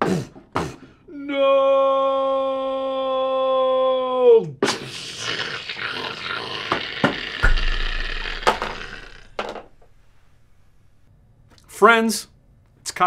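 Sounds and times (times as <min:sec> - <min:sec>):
knocks and thumps of tumbling: 0:07.1 - 0:10.0
low rumble: 0:07.4 - 0:11.0.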